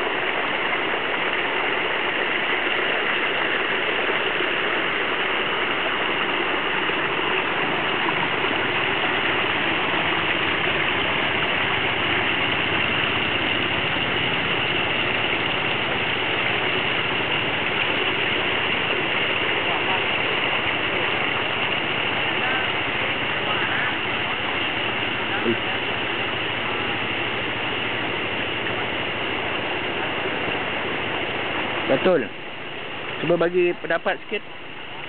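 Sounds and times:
water rushing along a channel: 0:00.0 - 0:35.0.

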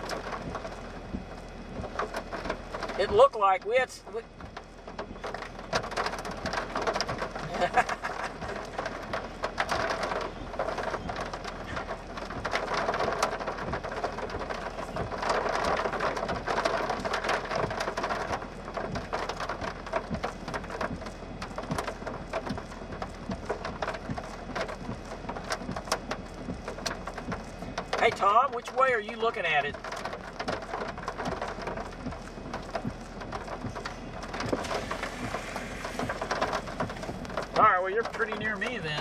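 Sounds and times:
raindrops tapping on car: 0:00.0 - 0:39.0
steady rushing hiss: 0:19.8 - 0:39.0.

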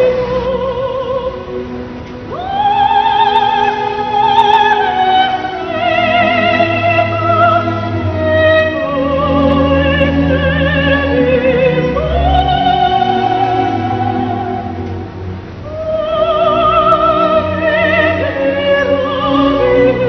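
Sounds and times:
classical accompaniment: 0:00.0 - 0:20.0
operatic singing with vibrato: 0:00.0 - 0:20.0.

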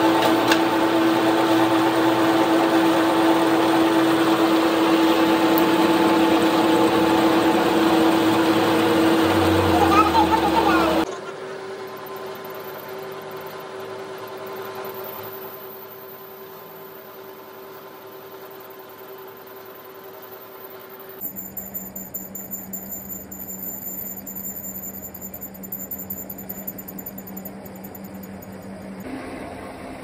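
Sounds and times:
metal lathe humming: 0:00.6 - 0:11.1.

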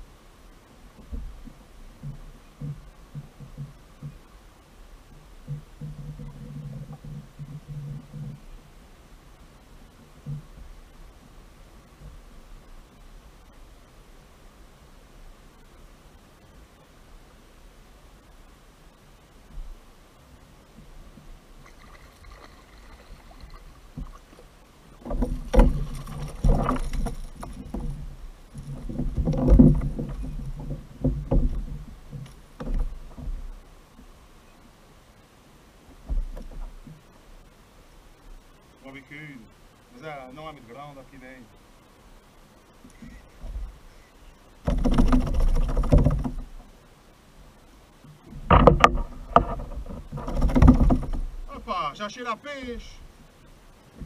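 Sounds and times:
handling noise on plastic kayak: 0:00.8 - 0:04.3, 0:05.4 - 0:08.6, 0:20.7 - 0:34.2, 0:35.9 - 0:37.1, 0:42.9 - 0:46.8, 0:48.0 - 0:51.5
water splashing: 0:21.5 - 0:33.6.

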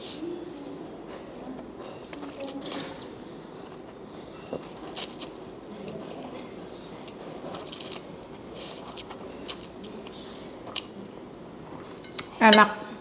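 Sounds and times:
person chewing noodles: 0:02.1 - 0:11.0.

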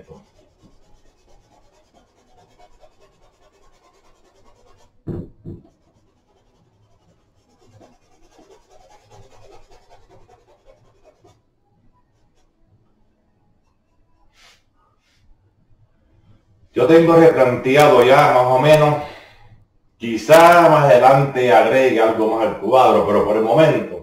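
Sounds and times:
paintbrush scratching on canvas: 0:00.0 - 0:12.9, 0:13.5 - 0:15.3, 0:16.8 - 0:19.0, 0:20.0 - 0:24.0
loud double thump: 0:05.0 - 0:05.7.

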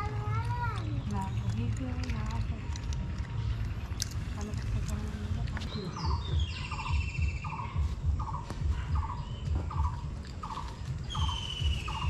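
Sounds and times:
bird whistles: 0:06.0 - 0:12.0.

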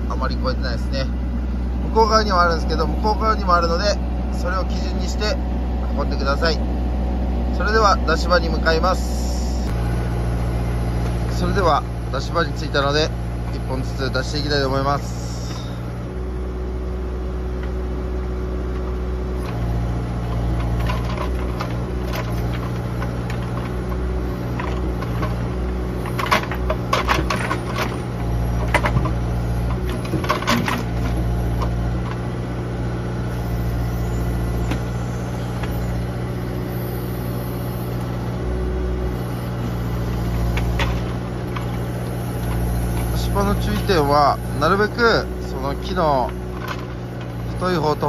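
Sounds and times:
diesel engine running: 0:00.0 - 0:48.0
hydraulic whine: 0:00.0 - 0:48.0
logs knocking and clattering: 0:20.3 - 0:32.2.

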